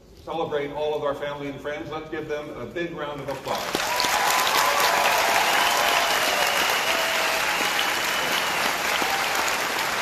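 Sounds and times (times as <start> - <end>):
audience applauding: 3.4 - 10.0.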